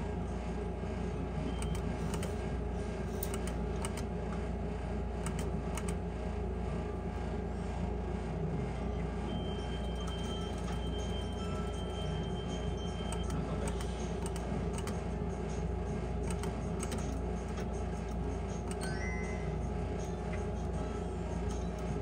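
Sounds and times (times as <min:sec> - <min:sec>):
low hum: 0:00.0 - 0:22.0
thin high tone: 0:18.8 - 0:19.7.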